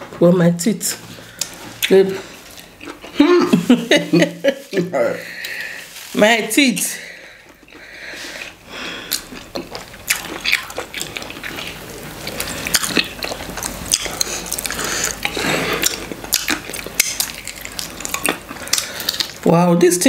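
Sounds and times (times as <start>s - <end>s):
person eating with wet mouth sounds: 1.2s - 6.1s, 7.4s - 19.4s.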